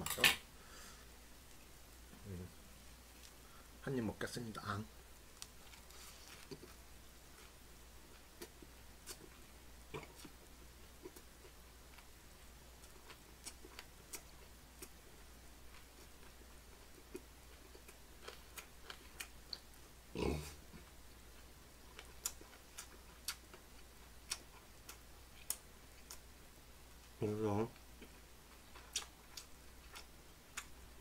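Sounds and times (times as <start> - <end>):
person chewing food: 5.4 - 19.8, 20.7 - 26.3, 28.0 - 30.8.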